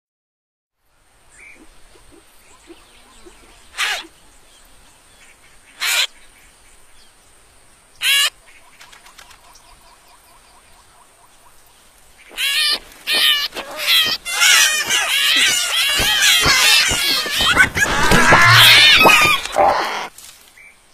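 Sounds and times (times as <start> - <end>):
faint outdoor background: 0.7 - 20.9
animal cries: 3.8 - 4.0, 12.3 - 20.1.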